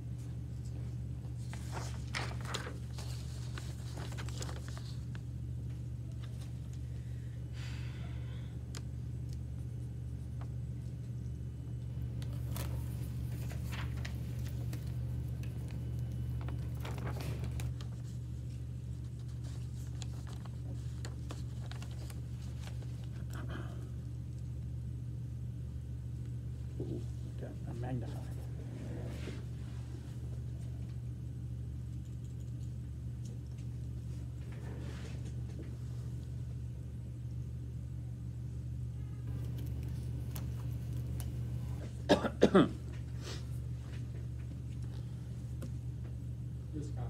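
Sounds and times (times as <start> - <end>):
steady low hum: 0.0 - 47.0
paper rustling: 1.3 - 5.3, 12.0 - 23.3, 39.3 - 42.0.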